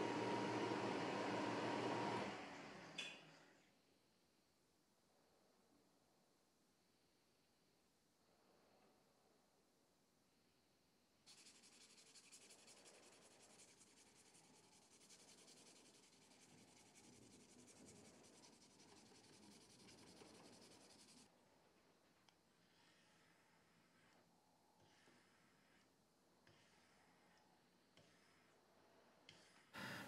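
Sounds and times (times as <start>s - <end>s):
faint dry scratching rub: 11.3s - 21.3s.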